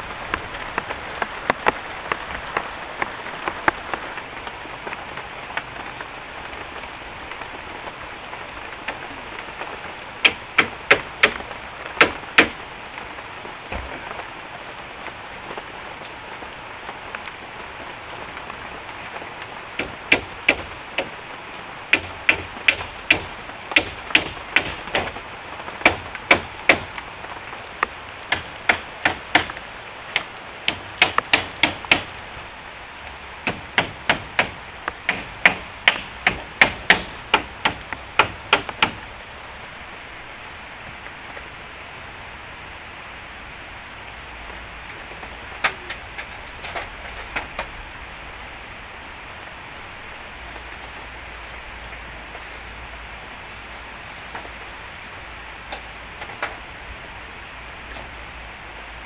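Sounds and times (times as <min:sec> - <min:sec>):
heavy rain falling: 0:00.0 - 0:59.0
knocking strikes on wood: 0:10.2 - 0:11.4, 0:28.3 - 0:29.6, 0:30.2 - 0:32.1, 0:33.4 - 0:39.0.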